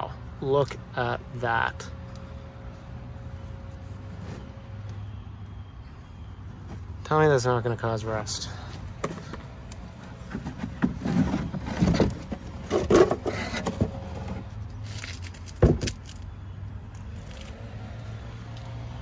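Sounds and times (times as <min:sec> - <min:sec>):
plastic scraping and clattering: 0:09.0 - 0:16.2.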